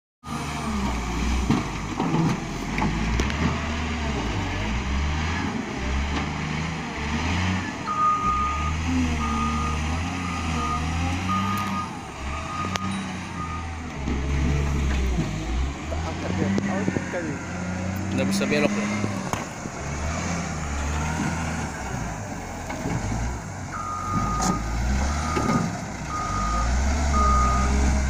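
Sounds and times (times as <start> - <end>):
diesel engine running: 0.2 - 28.0
reversing alarm beeps: 7.9 - 13.7, 23.8 - 27.8.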